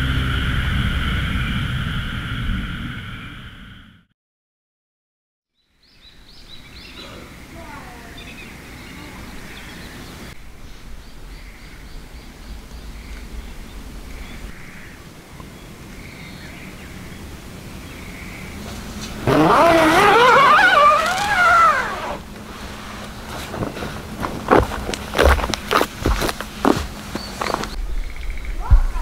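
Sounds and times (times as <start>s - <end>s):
loud wavering pitched call: 19.2s - 22.3s.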